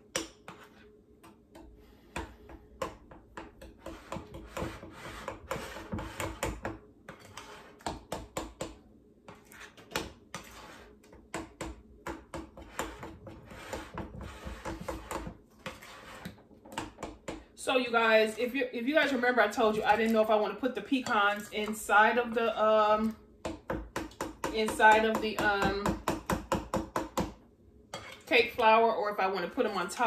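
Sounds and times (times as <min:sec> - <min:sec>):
utensil scraping glass bowl: 0:03.7 - 0:07.9, 0:09.3 - 0:11.0, 0:12.6 - 0:16.4, 0:27.9 - 0:28.4.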